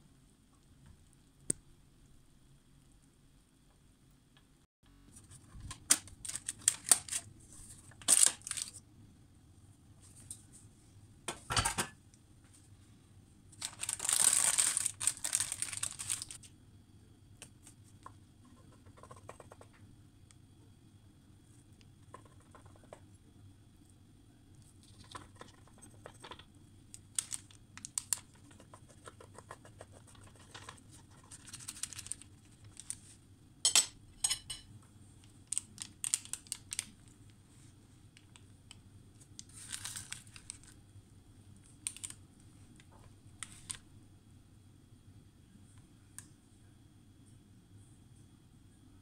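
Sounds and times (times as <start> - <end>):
parchment paper crinkling: 5.2 - 8.8, 13.6 - 16.5, 24.6 - 33.2, 35.2 - 37.4, 38.2 - 40.8, 41.6 - 43.8.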